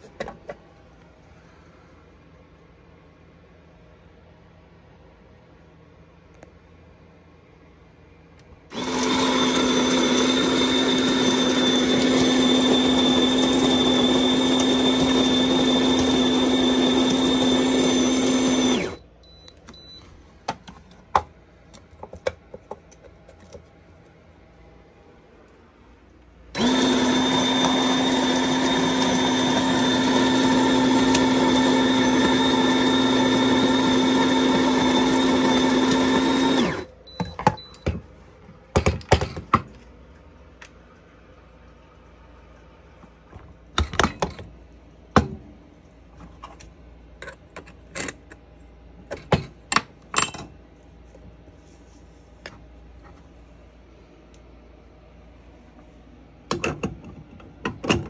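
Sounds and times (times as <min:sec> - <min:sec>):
coffee grinder motor grinding: 0:08.7 - 0:19.0, 0:26.6 - 0:36.9.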